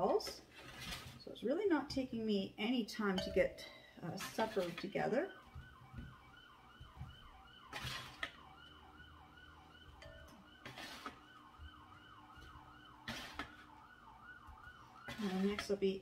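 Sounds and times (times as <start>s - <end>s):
faint siren wailing: 3.2s - 16.0s
spatula scraping metal tray: 4.1s - 5.0s, 7.7s - 8.3s, 10.5s - 11.3s, 13.0s - 13.7s, 15.0s - 15.9s.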